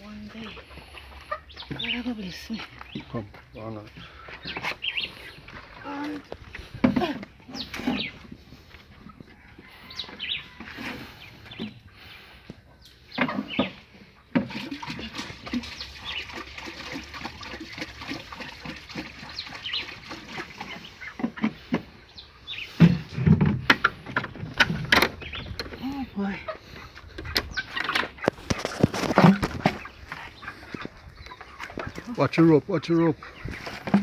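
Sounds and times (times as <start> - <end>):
chickens clucking: 0.0 - 34.0
liquid pouring into plastic drum: 14.4 - 20.9.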